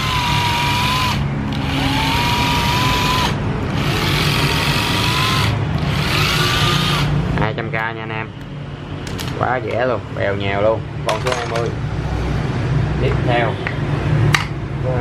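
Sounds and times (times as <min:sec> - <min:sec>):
cordless driver motor whining: 0:00.0 - 0:07.1.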